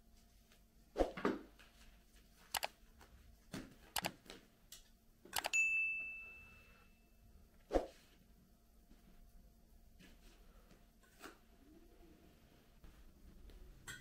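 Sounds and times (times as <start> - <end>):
high ringing tone: 5.4 - 7.3.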